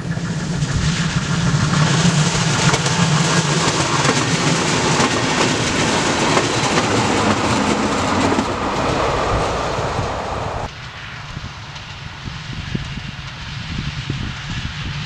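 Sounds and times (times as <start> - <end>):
train passing: 0.0 - 15.0
wheels clattering over rail joints: 1.2 - 9.4.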